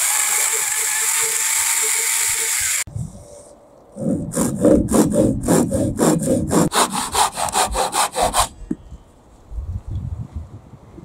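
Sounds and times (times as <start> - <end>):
handsaw cutting wood: 0.0 - 2.9, 4.0 - 8.6.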